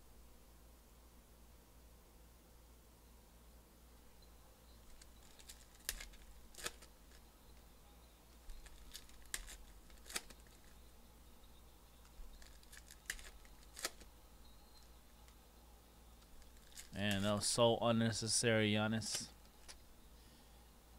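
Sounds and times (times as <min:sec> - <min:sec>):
foil wrappers crinkling and tearing: 0:04.9 - 0:07.2, 0:08.5 - 0:10.7, 0:12.2 - 0:14.1, 0:16.2 - 0:17.2.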